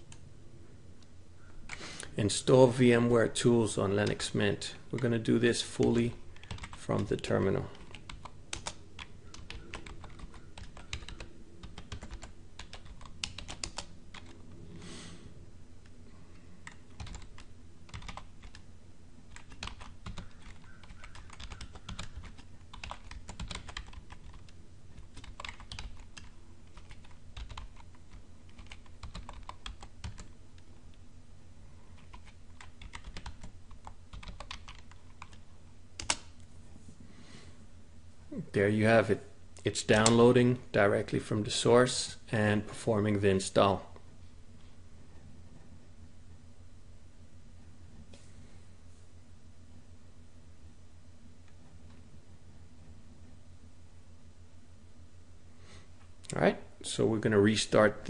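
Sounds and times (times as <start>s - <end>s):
low steady hum: 0.0s - 58.0s
keyboard typing: 6.4s - 7.1s, 7.7s - 14.4s, 16.6s - 18.6s, 19.3s - 30.7s, 31.9s - 35.4s, 36.0s - 36.3s.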